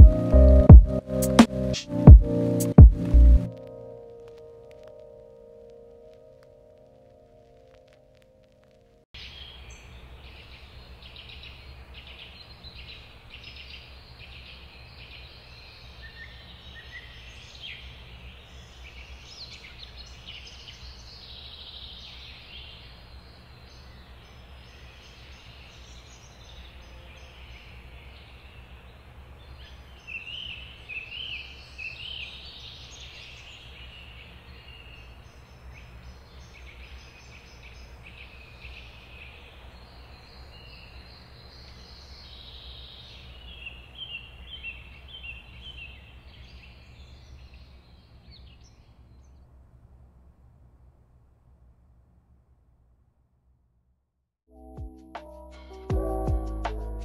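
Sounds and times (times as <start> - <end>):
birds chirping and trilling: 9.2 - 49.4.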